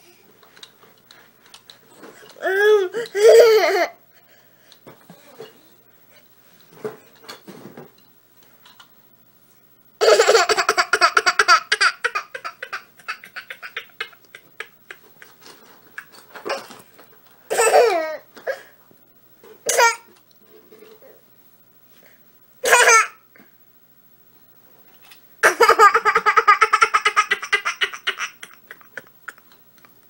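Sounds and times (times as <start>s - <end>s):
toddler girl laughing: 2.4s - 4.0s, 10.0s - 15.4s, 17.5s - 18.2s, 25.4s - 29.9s.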